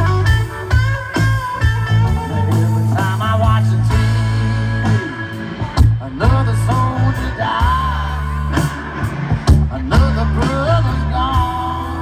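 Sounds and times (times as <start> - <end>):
bass guitar: 0.0 - 12.0
electric guitar: 0.0 - 12.0.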